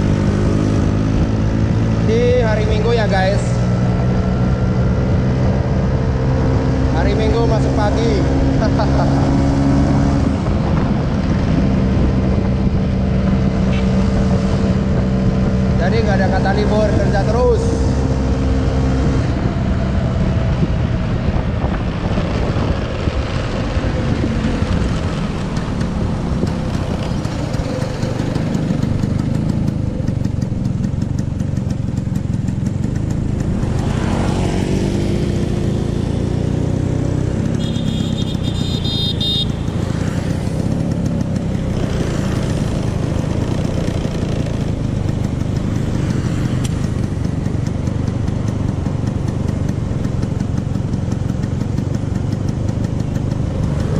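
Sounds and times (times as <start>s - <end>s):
road noise: 0.0s - 53.9s
scooter engine droning: 0.0s - 53.9s.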